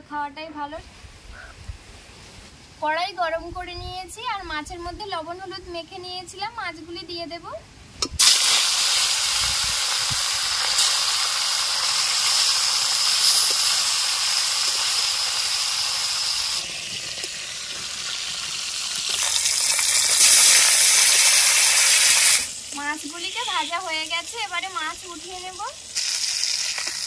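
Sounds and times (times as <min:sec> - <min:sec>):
fish sizzling in hot oil: 0:08.2 - 0:27.0.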